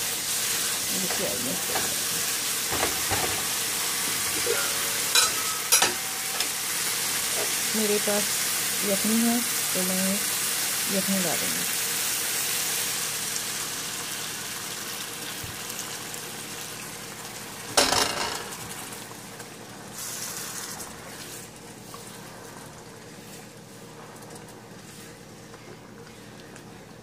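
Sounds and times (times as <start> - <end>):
loud sizzling: 0.0 - 24.6
metal clank: 4.3 - 6.5.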